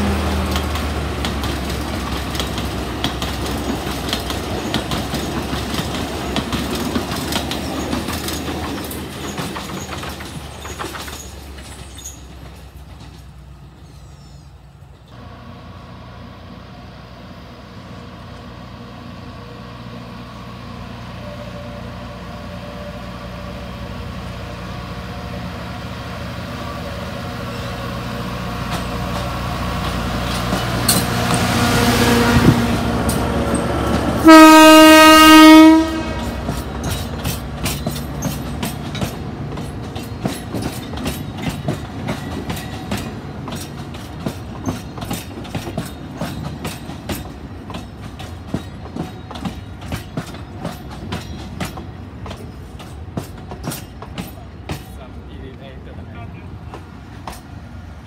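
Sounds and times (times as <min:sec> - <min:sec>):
wheels clicking over rail joints: 0:00.0 - 0:13.8, 0:28.4 - 0:31.6, 0:32.2 - 0:57.7
diesel locomotive engine rumble: 0:00.0 - 0:58.0
locomotive horn blast: 0:21.1 - 0:23.9, 0:34.2 - 0:36.5.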